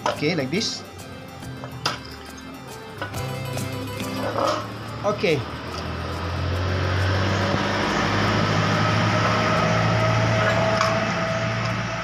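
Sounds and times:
vehicle engine running: 3.3s - 12.0s.

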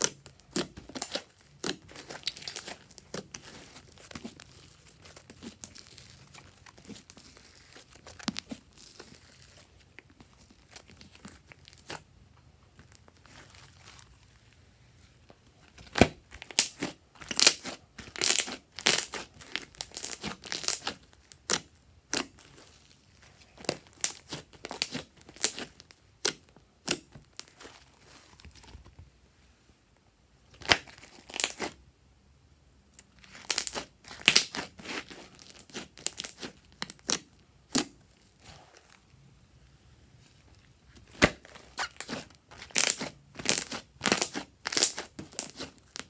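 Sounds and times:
slime popping and crackling: 0.0s - 12.1s, 15.8s - 22.8s, 23.5s - 27.8s, 30.6s - 31.8s, 33.0s - 38.0s, 41.0s - 46.0s.

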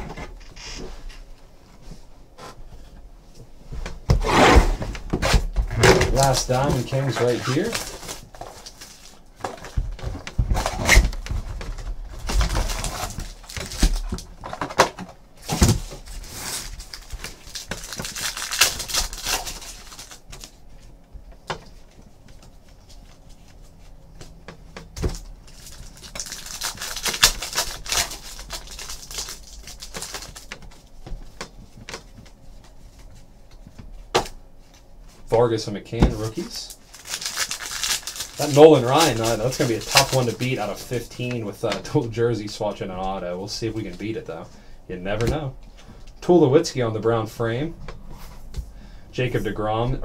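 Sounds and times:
card pack wrapper crinkling and tearing: 6.1s - 9.7s, 12.2s - 14.3s, 15.4s - 20.5s, 25.0s - 30.6s, 36.6s - 41.4s.

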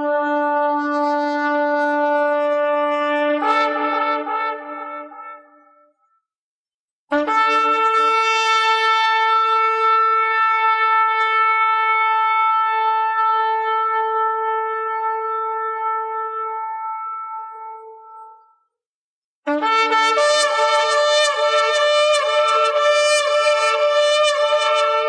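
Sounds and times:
shofar blast: 7.1s - 18.0s, 19.5s - 25.0s.

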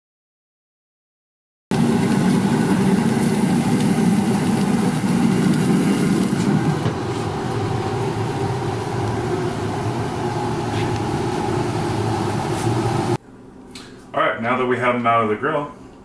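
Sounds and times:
machine humming: 1.7s - 13.6s.

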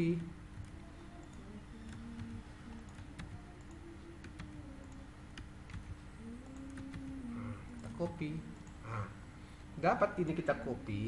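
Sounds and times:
computer keyboard and mouse clicks: 0.2s - 7.2s.

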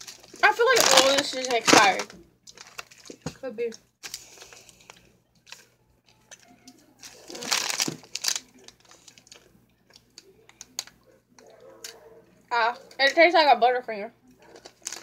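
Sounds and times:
candy wrapper crinkling: 0.0s - 11.0s, 14.4s - 15.0s.

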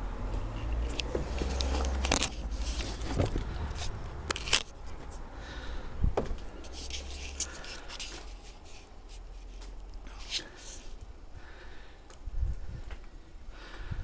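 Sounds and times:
steady low rumble: 0.0s - 14.0s
camera handling clicks and scuffs: 0.9s - 3.2s, 3.8s - 4.8s.

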